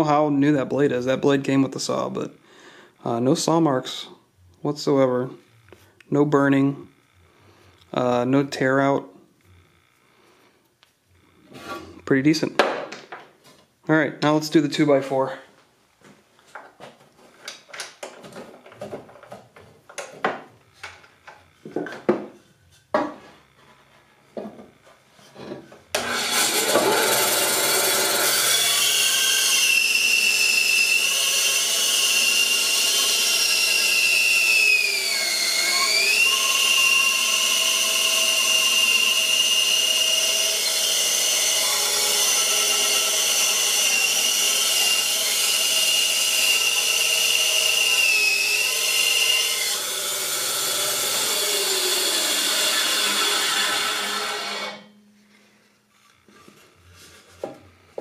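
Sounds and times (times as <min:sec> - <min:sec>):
bandsaw whining: 0:25.9 - 0:57.9.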